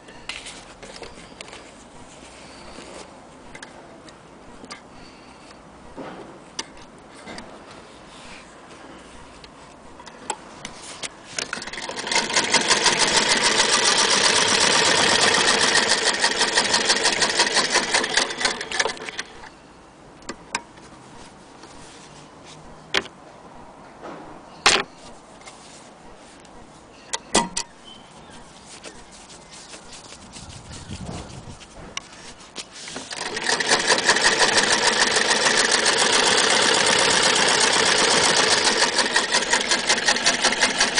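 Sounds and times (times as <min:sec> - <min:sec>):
sewing machine clattering: 0:11.4 - 0:19.4, 0:33.1 - 0:40.9.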